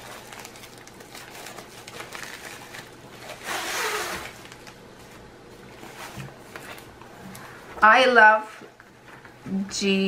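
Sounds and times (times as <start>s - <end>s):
envelope tearing rasp: 0.0s - 4.7s
plastic envelope crinkling: 0.0s - 7.4s.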